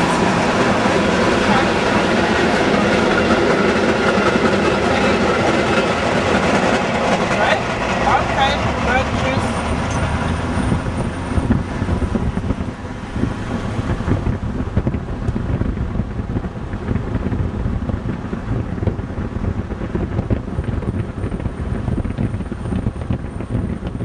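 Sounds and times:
road and engine rumble: 0:00.0 - 0:24.0
wind buffeting microphone: 0:00.0 - 0:24.0.

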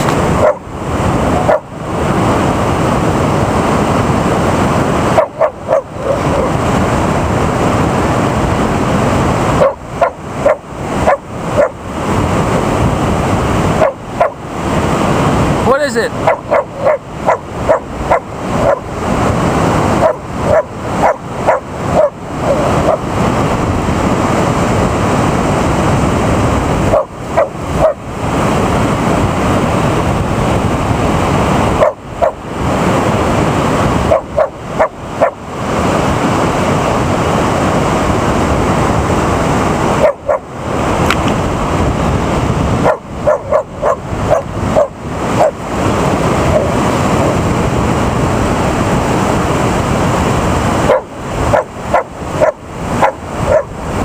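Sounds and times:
dog barking: 0:00.4 - 0:00.7, 0:01.4 - 0:01.7, 0:05.1 - 0:06.6, 0:09.6 - 0:11.8, 0:13.8 - 0:14.4, 0:16.2 - 0:18.9, 0:20.0 - 0:23.0, 0:26.9 - 0:28.0, 0:31.8 - 0:32.4, 0:34.0 - 0:35.4, 0:40.0 - 0:40.5, 0:42.8 - 0:45.6, 0:50.8 - 0:53.8.

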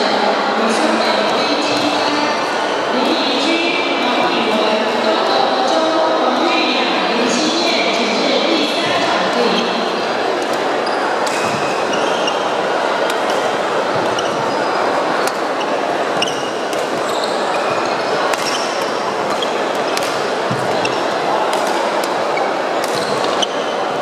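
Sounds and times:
sports hall din: 0:00.0 - 0:24.0
shoes squeaking on wooden floor: 0:10.6 - 0:21.2, 0:22.4 - 0:23.8
rackets hitting shuttlecock: 0:18.3 - 0:22.2.

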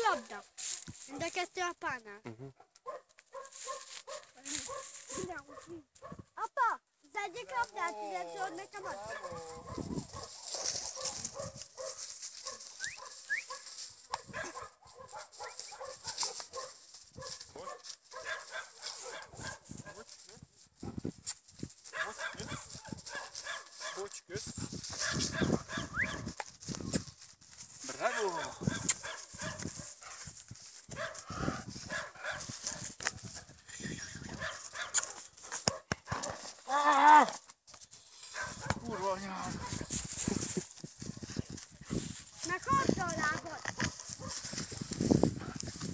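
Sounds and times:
dog barking: 0:02.5 - 0:06.3, 0:08.8 - 0:20.0, 0:21.9 - 0:24.1, 0:25.0 - 0:26.4, 0:28.0 - 0:30.2, 0:31.0 - 0:32.9, 0:34.3 - 0:36.5, 0:38.3 - 0:39.9, 0:43.7 - 0:44.4.

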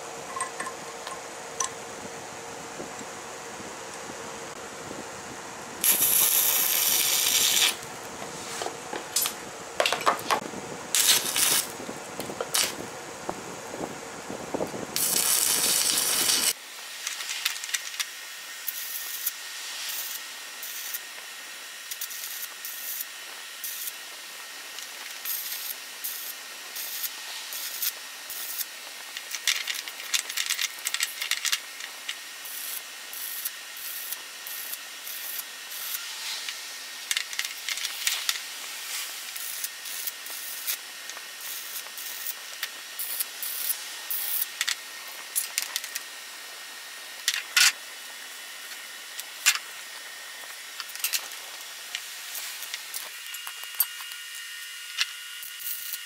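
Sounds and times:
steady hiss: 0:00.0 - 0:56.0
metal clicks and scrapes: 0:29.1 - 0:32.2, 0:35.8 - 0:38.4.

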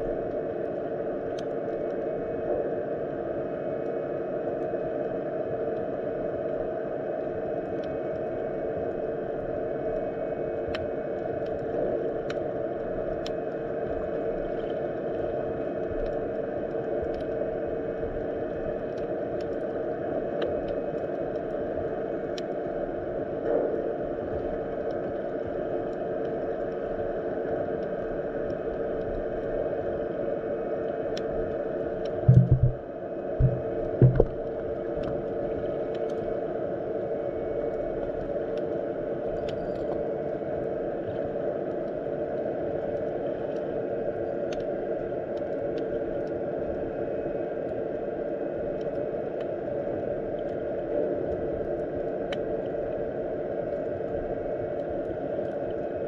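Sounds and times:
faint underwater clicks: 0:00.2 - 0:02.2, 0:07.4 - 0:36.5, 0:37.3 - 0:46.9, 0:47.5 - 0:56.0
muffled underwater rush: 0:32.1 - 0:35.9.

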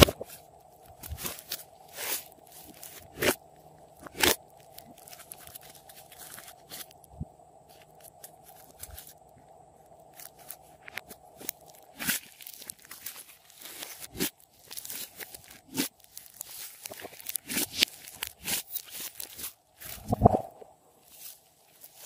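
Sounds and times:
slime popping and crackling: 0:00.0 - 0:07.1, 0:10.2 - 0:20.6.

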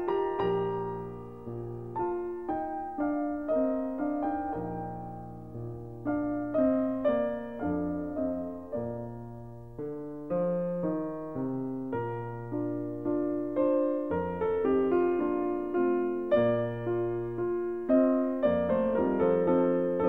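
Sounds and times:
gentle piano music: 0:00.0 - 0:20.0.

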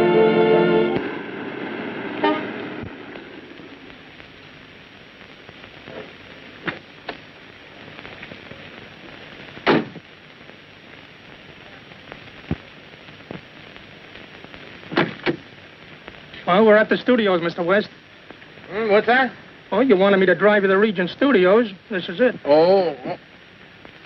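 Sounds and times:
film soundtrack hiss and crackle: 0:00.0 - 0:24.0
loud thump: 0:09.6 - 0:10.0.

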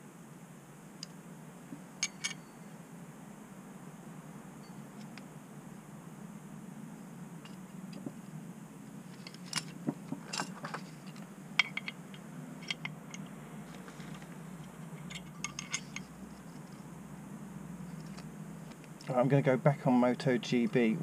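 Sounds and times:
metal plates clinking and scraping: 0:02.0 - 0:02.5, 0:09.2 - 0:13.3, 0:13.9 - 0:16.1.

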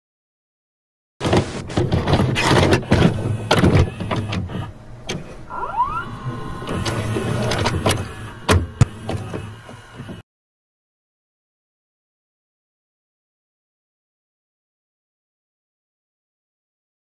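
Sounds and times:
cassette mechanism clicks and clunks: 0:01.2 - 0:05.5, 0:06.6 - 0:10.2
motor whirring with rising whine: 0:02.4 - 0:10.2.

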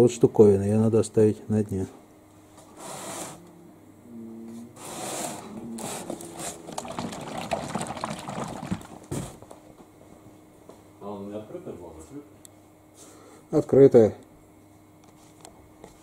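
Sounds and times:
oil sloshing in plastic canister: 0:06.1 - 0:09.6.

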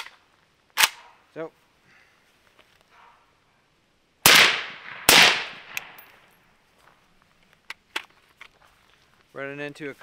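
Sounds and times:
suppressed rifle shots: 0:04.2 - 0:06.1.

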